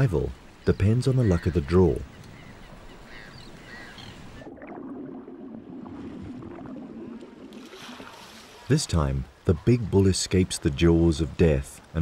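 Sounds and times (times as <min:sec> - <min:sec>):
faint gull calls: 0:01.1 - 0:04.4
water sloshing and splashing: 0:02.8 - 0:09.4.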